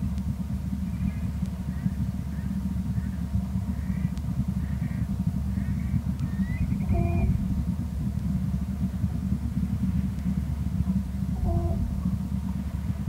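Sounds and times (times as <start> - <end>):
low outdoor rumble: 0.0 - 13.0
brief pitched tone: 11.4 - 12.0.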